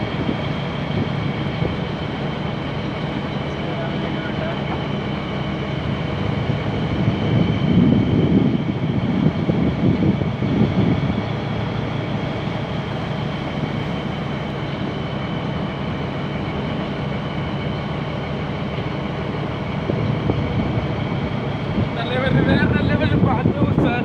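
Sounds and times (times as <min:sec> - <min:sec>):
wind buffeting microphone: 0:00.0 - 0:14.6, 0:19.2 - 0:24.0
boat engine drone: 0:00.0 - 0:24.0.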